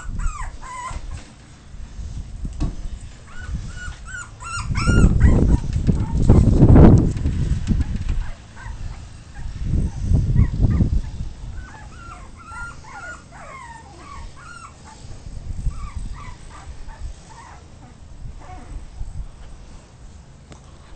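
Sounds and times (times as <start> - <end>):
puppies whimpering and yipping: 0.0 - 1.3, 3.2 - 6.6, 7.8 - 19.2
low rumbling thumps: 2.2 - 8.9.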